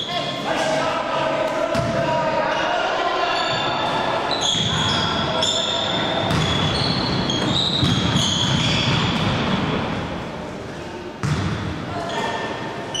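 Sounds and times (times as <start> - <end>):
sneakers squeaking: 3.3 - 9.7, 11.2 - 13.0
basketball bouncing on wooden floor: 11.2 - 11.6.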